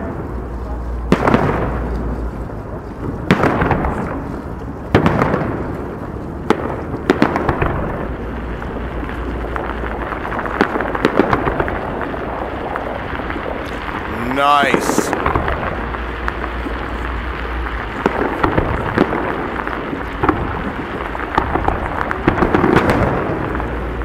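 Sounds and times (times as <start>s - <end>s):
small firework pops: 1.0s - 23.8s
firework shells bursting: 12.7s - 23.4s.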